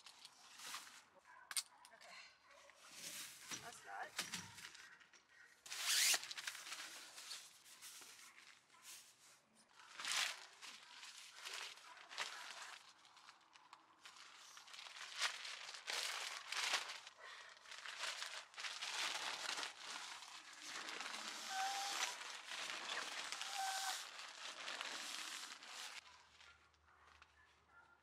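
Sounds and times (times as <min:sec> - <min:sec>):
nylon sleeping bag rustling: 0:05.7 - 0:08.4, 0:09.8 - 0:27.2.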